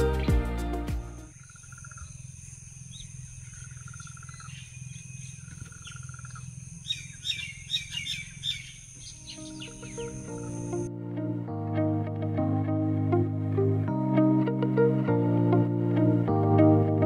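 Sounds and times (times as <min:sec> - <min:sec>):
background music: 0:00.0 - 0:01.3, 0:09.2 - 0:17.0
bird chirps: 0:01.3 - 0:10.9
buzzy bird trill: 0:01.3 - 0:10.9.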